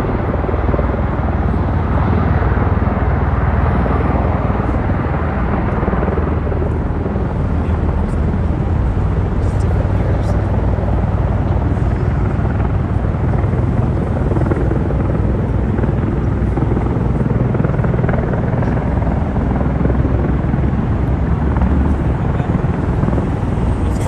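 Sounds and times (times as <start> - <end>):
rotors pulsing drone: 0.0 - 24.0.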